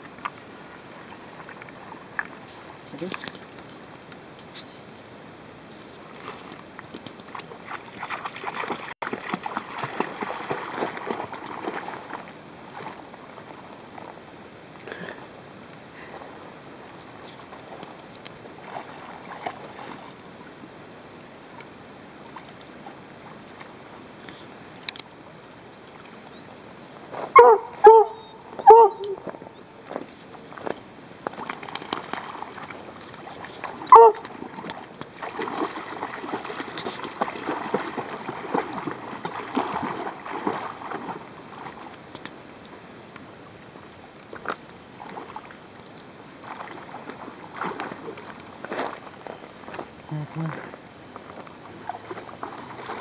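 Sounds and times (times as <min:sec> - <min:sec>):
dog paddling in water: 0:05.7 - 0:14.3, 0:16.0 - 0:20.7, 0:25.4 - 0:42.9, 0:43.6 - 0:53.0
dog splashing through water: 0:07.2 - 0:13.6, 0:18.6 - 0:20.2, 0:31.3 - 0:42.0, 0:46.4 - 0:49.0, 0:51.6 - 0:53.0
dog barking: 0:27.4 - 0:29.2, 0:33.9 - 0:34.2.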